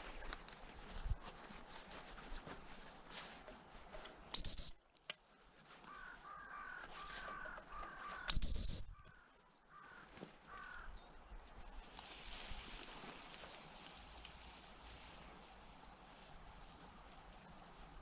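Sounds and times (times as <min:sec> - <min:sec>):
shrill dog whistle pips: 0:04.3 - 0:04.8, 0:08.3 - 0:08.9
softer lower chirps: 0:04.3 - 0:05.0, 0:08.3 - 0:09.1.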